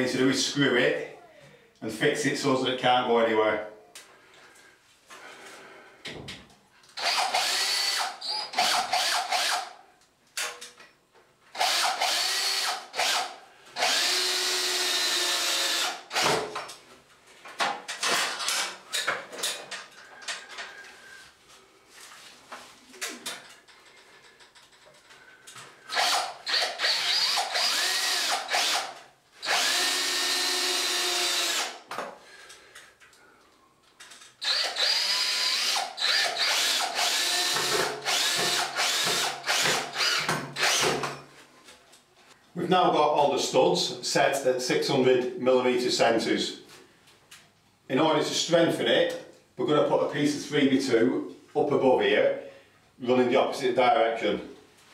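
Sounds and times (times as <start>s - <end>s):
cordless drill driving screws: 7.0s - 9.7s, 11.5s - 16.4s, 25.9s - 31.8s, 34.4s - 41.2s.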